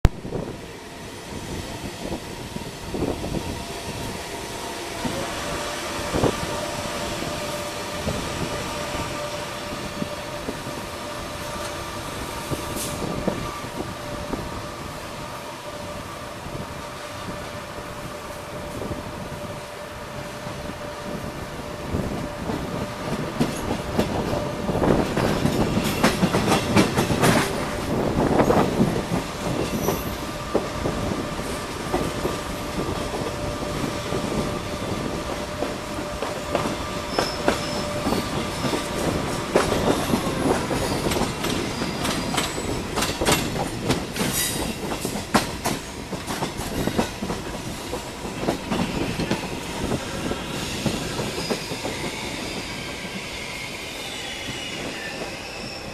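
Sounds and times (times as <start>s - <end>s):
train wheels clattering over rail joints: 23.1s - 30.7s, 35.3s - 52.7s
wheel squeal: 37.0s - 38.9s, 50.3s - 55.9s.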